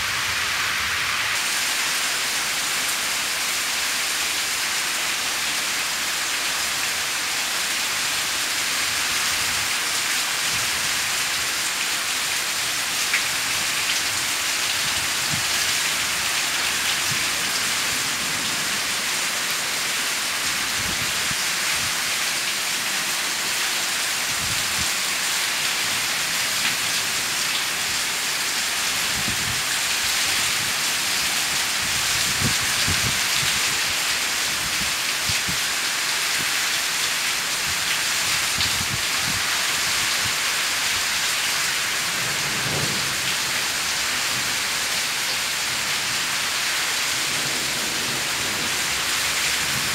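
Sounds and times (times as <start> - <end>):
heavy rain pouring: 0.0 - 49.9
low thunder rumbles: 42.3 - 43.3.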